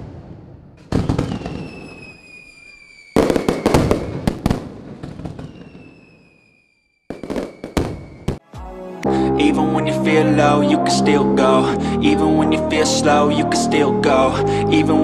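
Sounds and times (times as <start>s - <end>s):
firework bursts crackling: 0.0s - 8.4s
high falling whistle: 1.2s - 4.4s, 5.4s - 8.4s.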